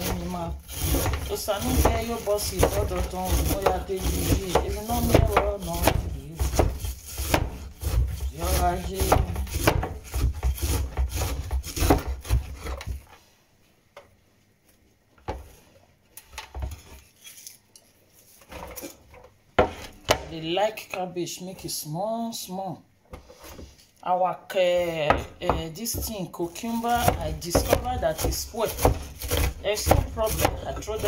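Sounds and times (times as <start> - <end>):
cleaver chopping on wooden board: 0.0 - 12.8, 26.8 - 31.0.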